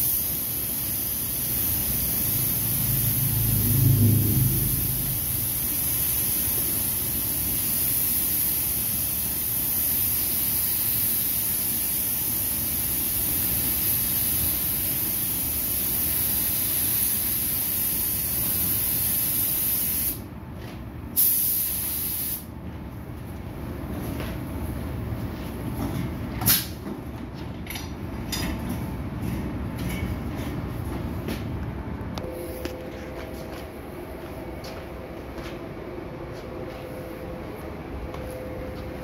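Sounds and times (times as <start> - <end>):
air hissing: 0.0 - 3.6, 4.5 - 20.2, 21.2 - 22.5
low rumble: 2.5 - 5.7.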